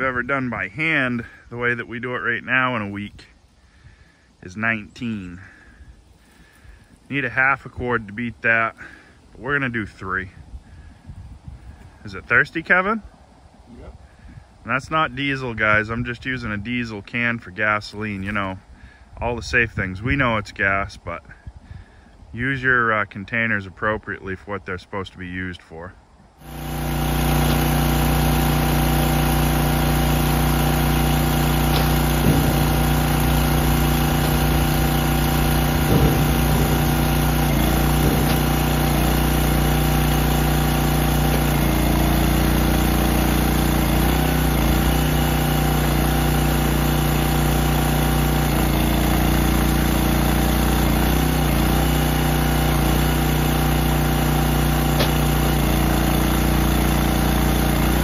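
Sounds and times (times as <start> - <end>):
log splitter engine running: 26.4 - 58.0
wood knocks: 31.7 - 34.8, 37.8 - 38.5.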